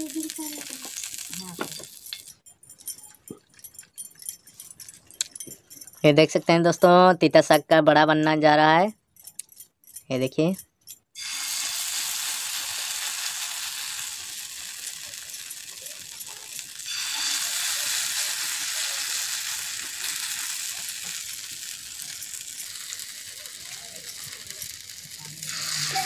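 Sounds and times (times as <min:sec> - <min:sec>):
batter sizzling on a griddle: 0:00.0 - 0:02.4, 0:11.2 - 0:26.0.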